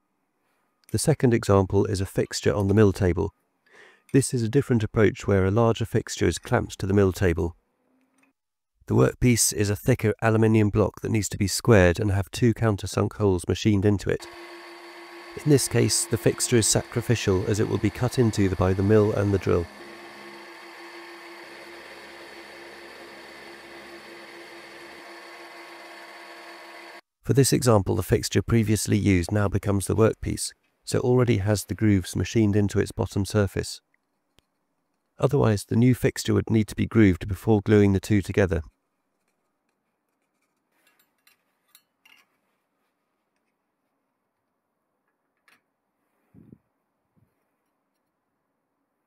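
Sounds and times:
milling machine hum: 0:14.2 - 0:27.0.

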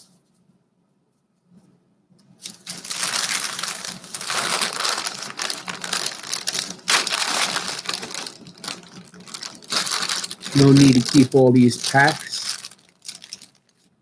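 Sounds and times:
wax paper wrappers crinkling: 0:02.4 - 0:13.9.

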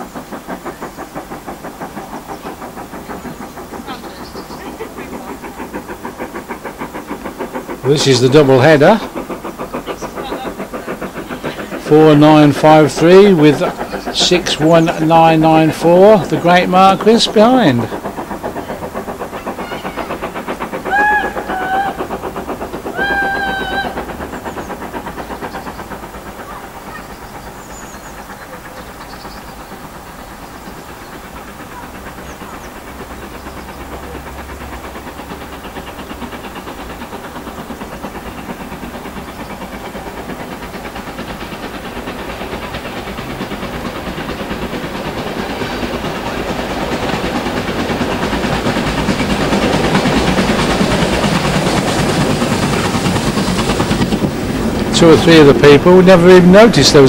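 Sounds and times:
steam train chuffing: 0:00.0 - 0:57.0
locomotive whistle: 0:20.9 - 0:22.0, 0:22.9 - 0:24.0.

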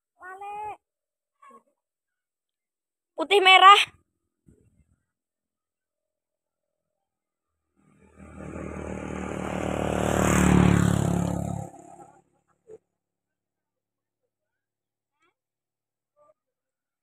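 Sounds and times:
vehicle engine running: 0:07.8 - 0:12.3.

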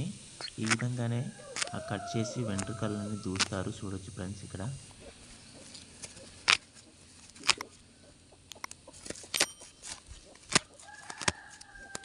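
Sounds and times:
feathers snapping and rustling: 0:00.5 - 0:03.7, 0:05.6 - 0:07.8, 0:08.6 - 0:12.0.

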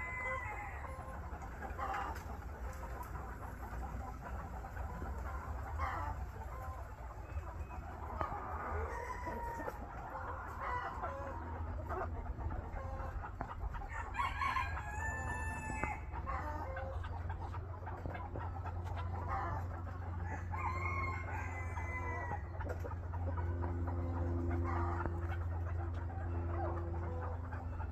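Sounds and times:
rooster crowing: 0:00.0 - 0:01.0, 0:13.8 - 0:16.1, 0:20.2 - 0:22.5
chickens clucking: 0:00.0 - 0:27.9.

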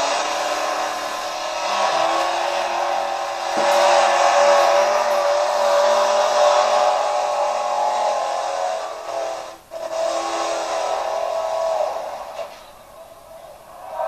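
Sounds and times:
tractor engine at full throttle: 0:00.0 - 0:07.7.

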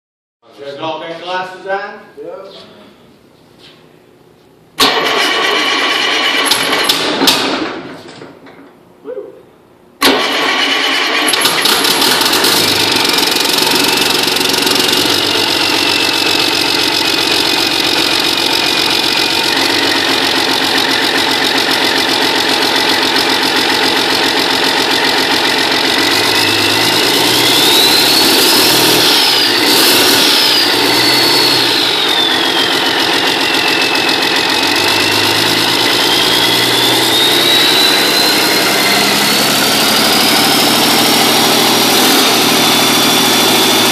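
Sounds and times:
diesel engine running: 0:04.8 - 0:07.2, 0:10.0 - 0:43.9
high whistle rising in pitch: 0:26.3 - 0:43.9.

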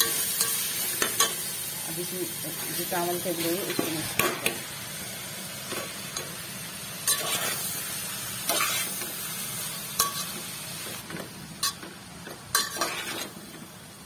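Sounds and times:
food sizzling in a pot: 0:00.0 - 0:14.0
spatula scraping a metal pot: 0:12.6 - 0:13.4.

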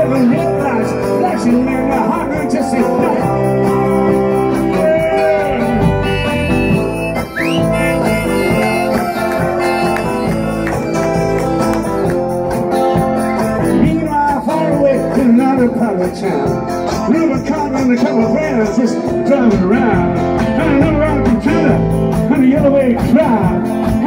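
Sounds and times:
man singing lead vocal: 0:00.0 - 0:06.6, 0:13.7 - 0:24.0
live rock band: 0:00.0 - 0:24.0.

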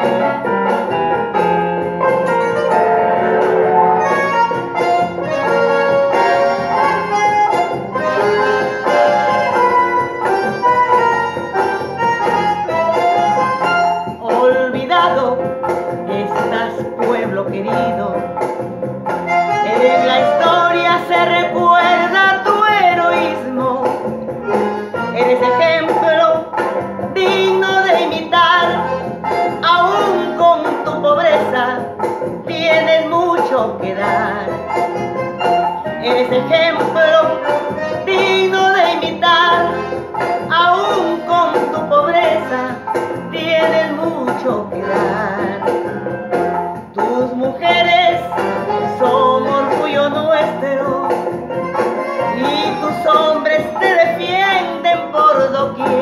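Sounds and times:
instrumental accompaniment: 0:00.0 - 0:56.0
woman singing into a microphone: 0:14.1 - 0:18.4, 0:19.5 - 0:35.0, 0:35.8 - 0:46.0, 0:46.8 - 0:56.0.

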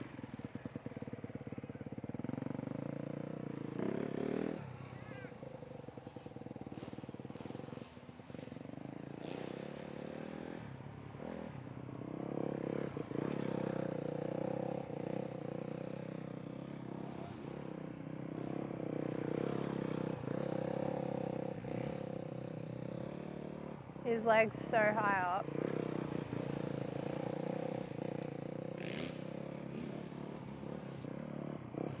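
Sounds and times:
dirt bike engine revving: 0:16.6 - 0:32.0.

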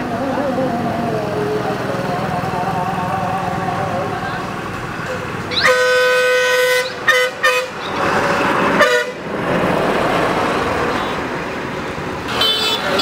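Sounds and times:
heavy traffic noise: 0:00.0 - 0:13.0
truck passing close by: 0:00.0 - 0:13.0
vehicle horns honking: 0:05.5 - 0:08.1, 0:08.8 - 0:09.3, 0:12.3 - 0:13.0.

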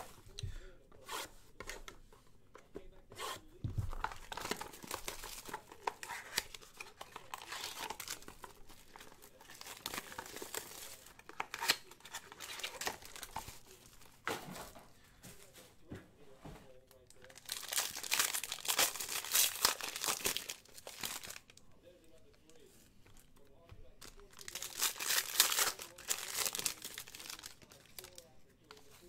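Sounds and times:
cardboard tearing: 0:03.1 - 0:13.8, 0:17.3 - 0:21.4, 0:24.3 - 0:28.2
foil crinkling: 0:03.8 - 0:14.2, 0:17.0 - 0:21.6, 0:24.0 - 0:29.0.

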